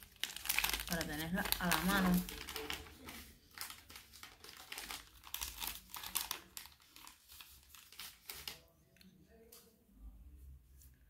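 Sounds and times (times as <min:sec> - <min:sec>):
plastic packet crinkling: 0:00.0 - 0:08.7.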